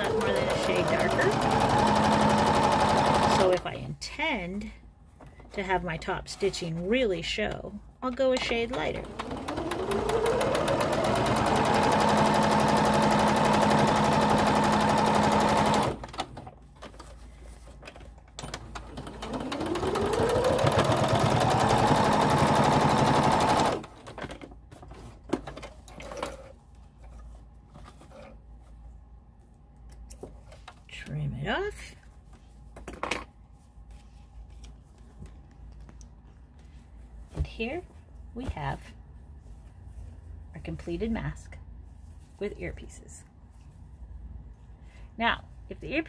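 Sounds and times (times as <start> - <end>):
sewing machine stitching: 0.0 - 3.6, 8.5 - 16.4, 18.4 - 24.2.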